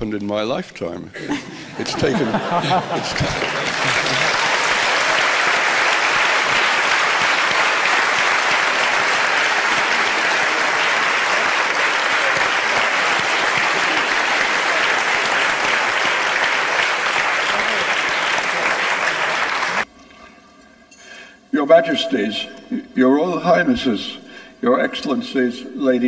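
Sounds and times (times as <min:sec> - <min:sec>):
audience applauding: 0:02.0 - 0:19.9.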